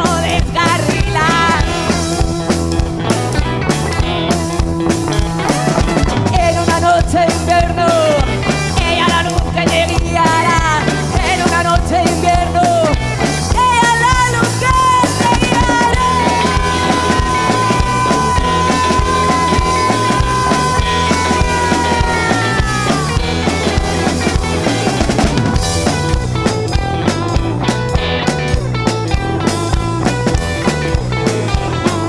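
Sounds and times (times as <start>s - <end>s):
woman singing: 0.0s - 2.3s, 6.3s - 24.9s
bass line: 0.0s - 32.0s
drums: 0.0s - 32.0s
electric guitars: 0.0s - 32.0s.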